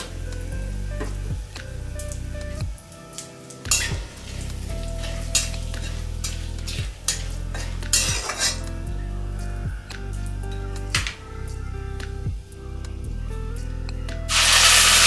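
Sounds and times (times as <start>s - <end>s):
spices sizzling in hot oil: 0.0s - 13.2s, 14.2s - 15.0s
spatula scraping a pan: 3.7s - 8.7s.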